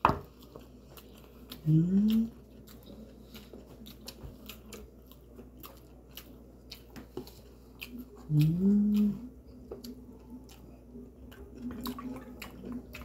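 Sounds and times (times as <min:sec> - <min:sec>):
rising hum-like vocal sound: 0:08.3 - 0:09.4.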